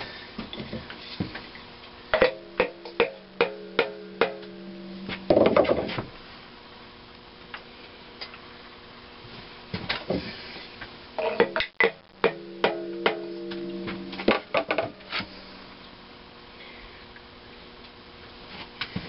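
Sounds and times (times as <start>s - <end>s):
metallic ringing tone: 2.2s - 5.3s, 11.2s - 15.8s.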